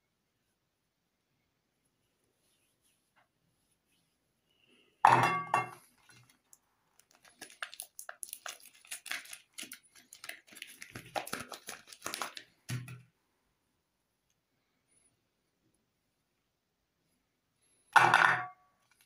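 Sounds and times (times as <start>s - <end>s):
hands rustling soap wrapper: 5.8s - 13.0s.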